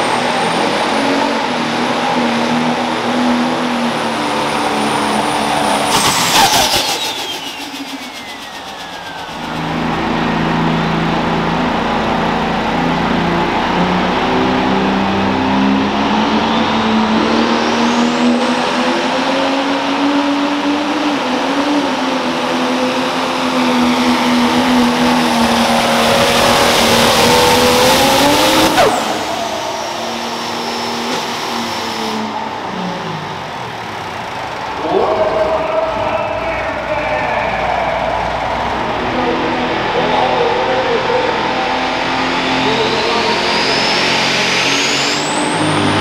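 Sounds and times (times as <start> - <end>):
tractor diesel engine under load: 0.0 - 46.0
high whine: 3.9 - 19.1, 23.0 - 46.0.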